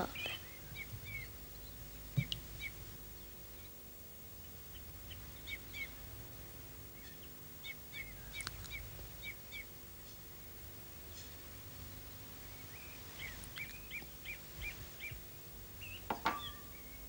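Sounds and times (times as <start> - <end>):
small bird chirping: 0.0 - 3.8, 4.4 - 6.0, 6.9 - 9.8, 11.9 - 17.0
faint steady hum: 0.0 - 17.0.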